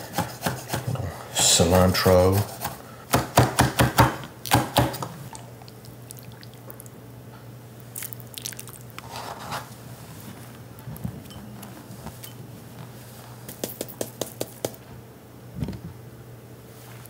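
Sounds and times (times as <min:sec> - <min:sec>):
knife chopping on cutting board: 0:00.0 - 0:00.9, 0:02.3 - 0:05.1
wet scooping sounds: 0:07.9 - 0:10.5.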